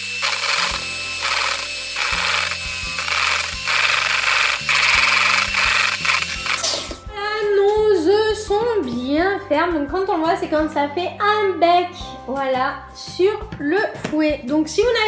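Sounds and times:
electric hand mixer whirring: 0:00.0 - 0:06.9
background music: 0:00.0 - 0:15.0.

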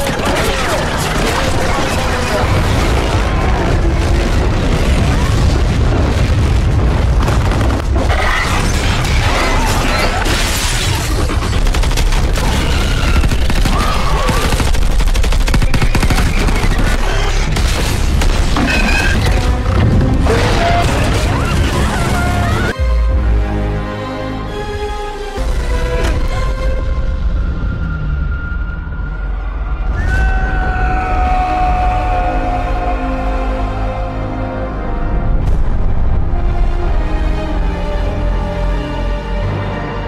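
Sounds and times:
loud film score music: 0:00.0 - 0:40.0
heavy booms: 0:02.4 - 0:09.3
gunfire bursts: 0:10.5 - 0:18.6.

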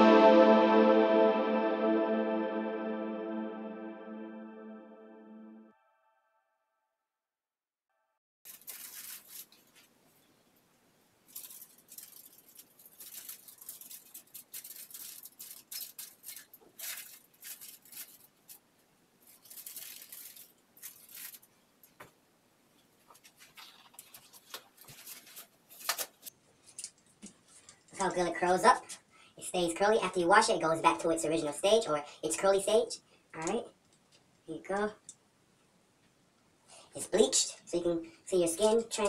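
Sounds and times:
aluminium foil rustling and crinkling: 0:08.4 - 0:10.3, 0:11.2 - 0:22.0, 0:23.0 - 0:28.0.

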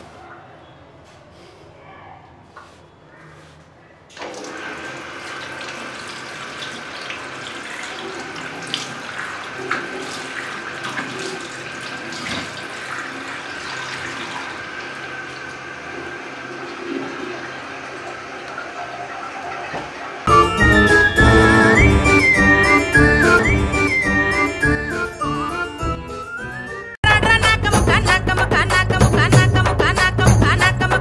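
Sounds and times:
tap running: 0:04.2 - 0:20.3.

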